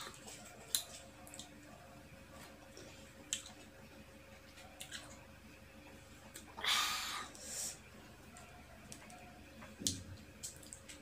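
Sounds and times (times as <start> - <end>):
chewing crisp mango: 0.0 - 1.7, 4.6 - 5.2
faint steady hum: 0.0 - 11.0.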